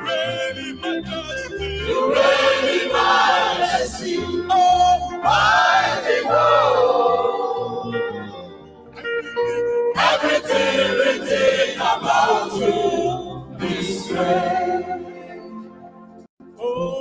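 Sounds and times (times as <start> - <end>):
man singing lead: 0.0 - 2.1, 16.6 - 17.0
group singing: 0.0 - 8.4, 10.0 - 15.4
guitar and bass: 0.0 - 13.8.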